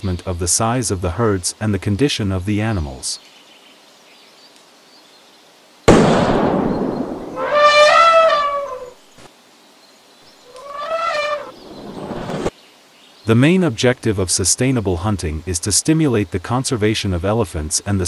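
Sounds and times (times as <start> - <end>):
elephant trumpeting: 7.3 - 9.0, 10.5 - 11.6.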